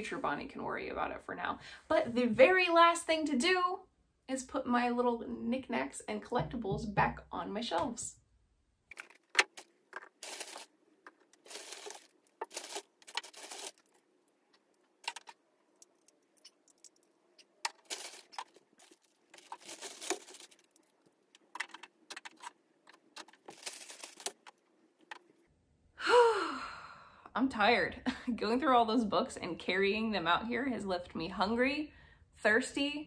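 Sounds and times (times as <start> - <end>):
rustling: 8.9 - 25.4.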